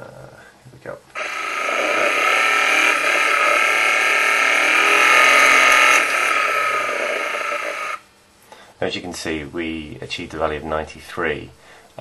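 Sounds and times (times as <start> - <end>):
engine mechanical clatter: 1.2 - 8.0.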